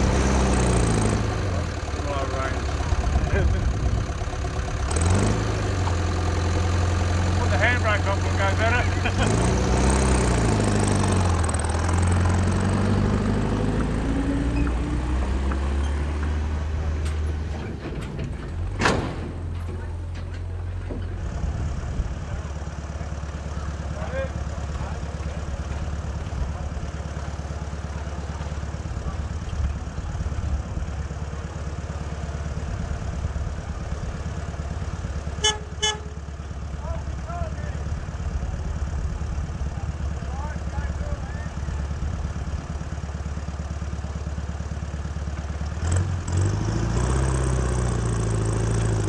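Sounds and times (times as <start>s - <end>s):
engine running at low revs: 0.0s - 49.0s
short horn toot: 35.4s - 36.2s.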